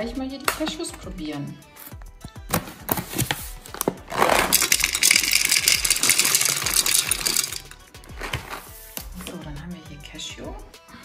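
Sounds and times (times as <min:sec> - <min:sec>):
nuts poured into plastic bowl: 0:04.1 - 0:07.8.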